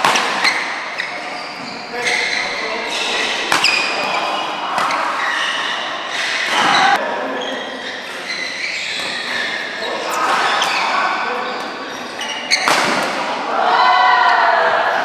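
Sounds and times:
shoes squeaking on court: 0:00.4 - 0:13.0.

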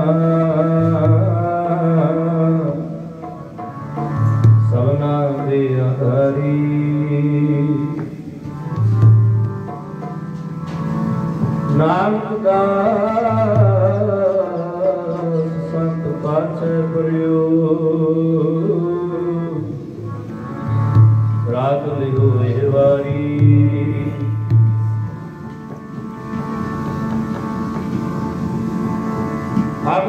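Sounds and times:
man singing slow melody: 0:00.0 - 0:03.3, 0:04.6 - 0:08.3, 0:11.7 - 0:20.2, 0:21.4 - 0:24.4
tabla strokes: 0:00.0 - 0:17.4, 0:18.5 - 0:30.0
harmonium: 0:00.0 - 0:30.0.

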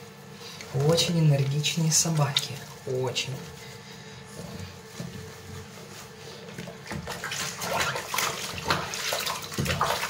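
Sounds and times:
water splashing in plastic basin: 0:06.6 - 0:10.0.

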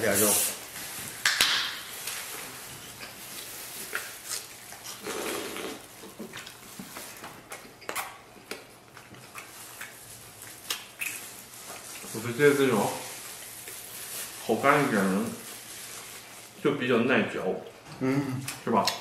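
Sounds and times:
chewing and mouth noises: 0:03.0 - 0:12.2.

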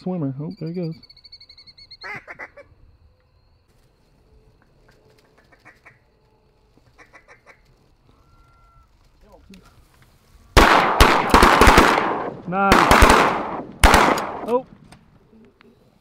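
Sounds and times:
ducks quacking: 0:02.0 - 0:02.7, 0:05.4 - 0:06.0, 0:06.9 - 0:07.7.

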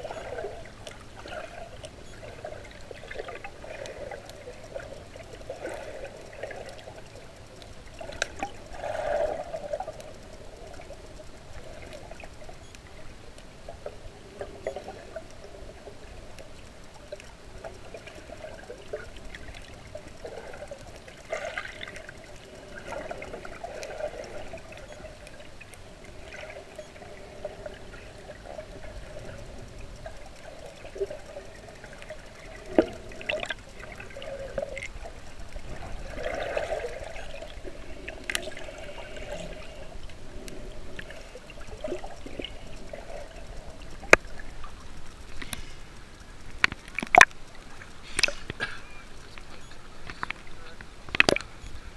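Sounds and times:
muffled underwater water wash: 0:00.0 - 0:51.9
small clicks: 0:00.0 - 0:51.9.

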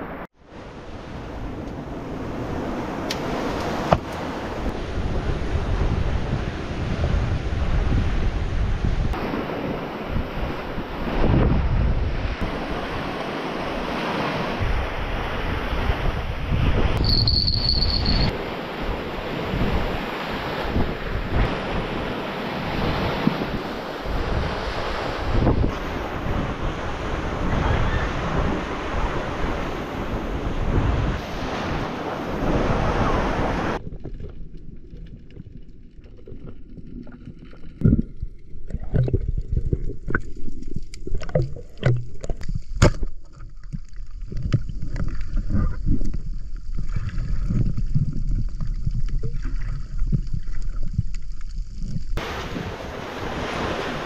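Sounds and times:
surf on a beach: 0:00.0 - 0:33.8, 0:52.2 - 0:54.0
wind: 0:00.0 - 0:54.0
underwater clicks and knocks: 0:33.8 - 0:52.1.

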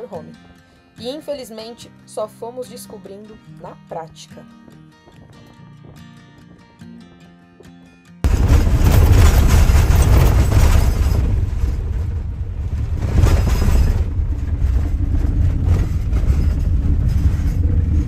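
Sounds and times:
rattling and knocking contents: 0:08.3 - 0:18.0
tyres rumbling on gravel: 0:08.3 - 0:18.0.

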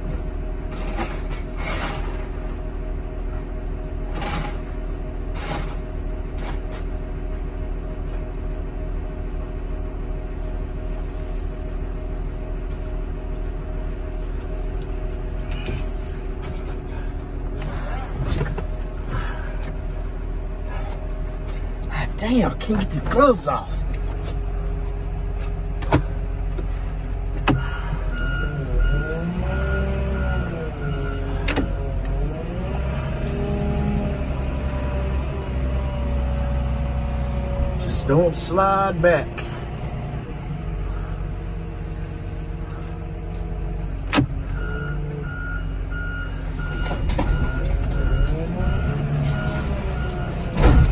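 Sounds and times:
heavy vehicle engine idling: 0:00.0 - 0:50.9
hydraulic whine: 0:25.8 - 0:37.9.

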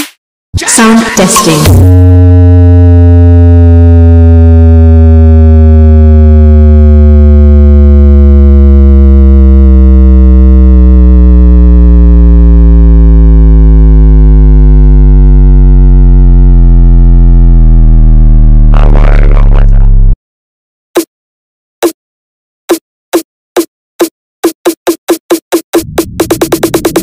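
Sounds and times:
deep bass tone gliding downward: 0:01.7 - 0:20.2, 0:25.8 - 0:27.0.

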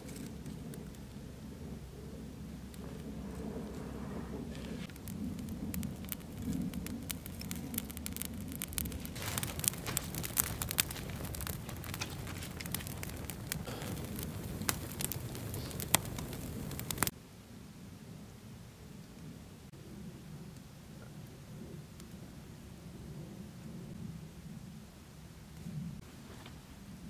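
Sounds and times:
campfire crackling and popping: 0:00.0 - 0:17.1
low rumble: 0:00.0 - 0:17.1.

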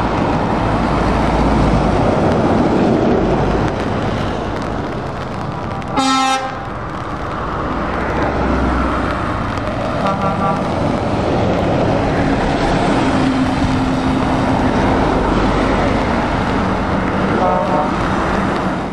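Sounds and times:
lorry diesel engines: 0:00.0 - 0:18.9
tyres hissing on wet road: 0:00.0 - 0:18.9
horn toot: 0:05.9 - 0:06.6.

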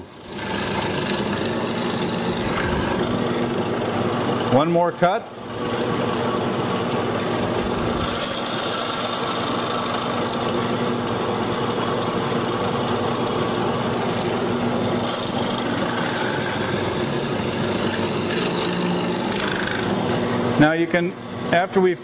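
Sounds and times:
chisel boring into wood: 0:00.0 - 0:03.2, 0:07.7 - 0:14.4, 0:15.0 - 0:20.3
drill press motor hum: 0:00.0 - 0:04.6, 0:05.4 - 0:20.6.

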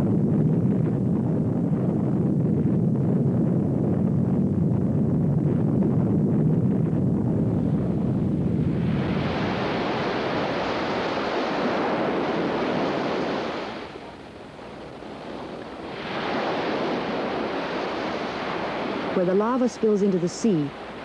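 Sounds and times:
surf breaking and washing: 0:07.6 - 0:21.0.

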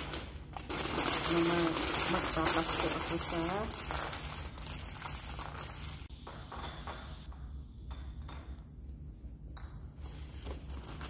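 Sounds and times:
steady low hum: 0:00.0 - 0:11.0
glass baubles clinking: 0:00.8 - 0:08.8.

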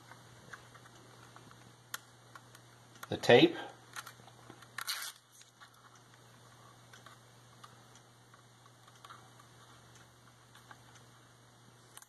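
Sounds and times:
tape liner peeling rustle: 0:04.8 - 0:05.6.

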